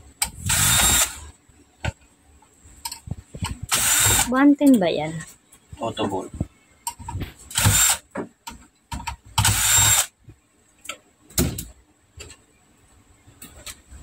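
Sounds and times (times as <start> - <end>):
cordless drill spinning screws: 0.5 - 1.2, 3.7 - 4.3, 7.5 - 8.0, 9.4 - 10.1.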